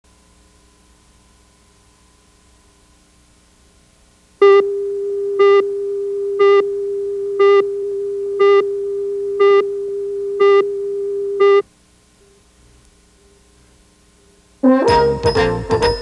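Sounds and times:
steady test tone: 4.4 - 11.6.

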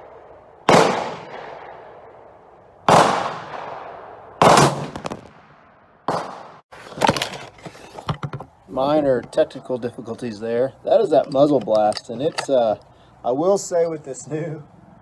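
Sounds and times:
rifle shot with echoing tail: 0.0 - 2.2, 2.9 - 6.6.

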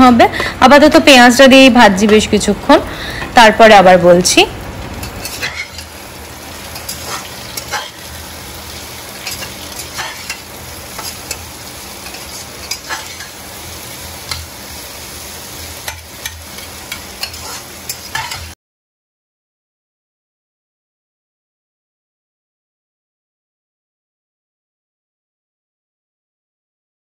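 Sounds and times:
vegetables sizzling in oil: 0.0 - 18.6
metal spatula scraping pot: 5.0 - 6.0, 6.6 - 8.2, 9.1 - 13.4, 15.8 - 18.5.

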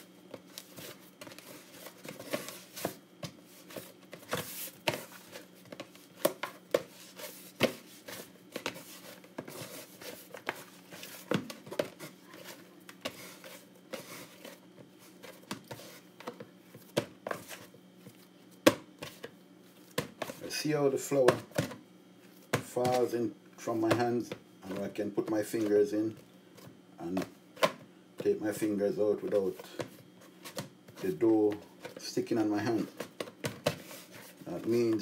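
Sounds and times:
hands rustling in flour: 0.1 - 16.2
dough thumping in plastic bowl: 21.2 - 21.8, 23.8 - 25.7.

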